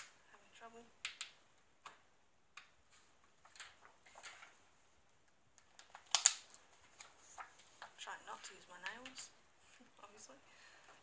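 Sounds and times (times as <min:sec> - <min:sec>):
paper rustling: 0:05.8 - 0:09.3.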